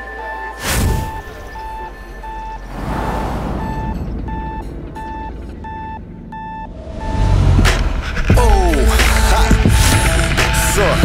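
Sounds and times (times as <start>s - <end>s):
reverse warning beeps: 0.0s - 8.2s
low engine rumble: 1.5s - 11.0s
brief rushing swell: 2.6s - 5.8s.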